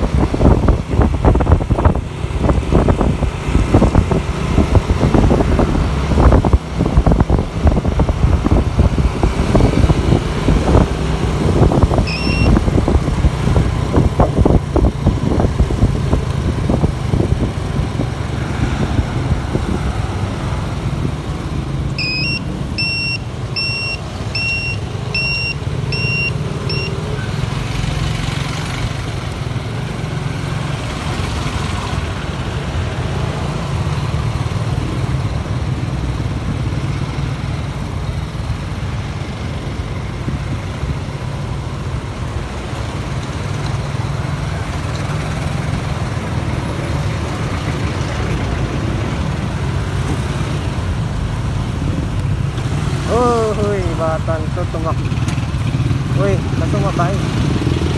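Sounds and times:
wind on microphone: 0:00.0 - 0:21.4
motorcycle engine rumble: 0:00.0 - 0:57.9
road and traffic noise: 0:00.0 - 0:57.9
short high beeps: 0:12.0 - 0:12.6, 0:22.0 - 0:27.0.

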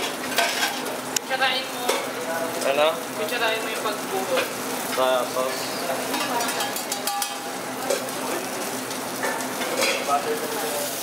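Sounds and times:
food frying sizzle: 0:00.0 - 0:11.0
metal spoon scraping a pan: 0:06.1 - 0:07.4.

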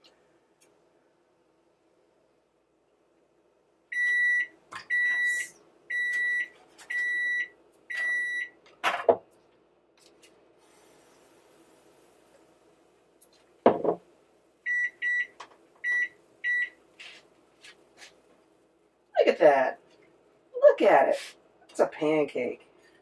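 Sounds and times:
kitchenware knocks: 0:13.7 - 0:14.0.

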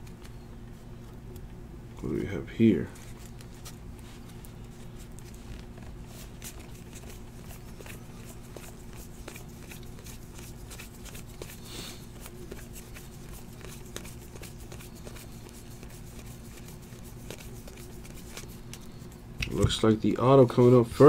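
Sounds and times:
trading cards flipped by hand: 0:03.0 - 0:19.6.

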